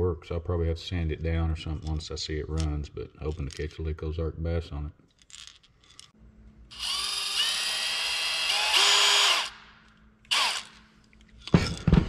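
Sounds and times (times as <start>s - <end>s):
drill motor whining: 6.7s - 9.6s, 10.3s - 10.8s.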